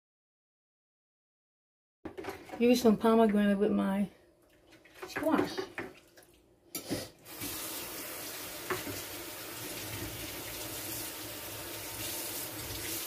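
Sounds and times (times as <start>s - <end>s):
water running into sink: 4.5s - 13.0s.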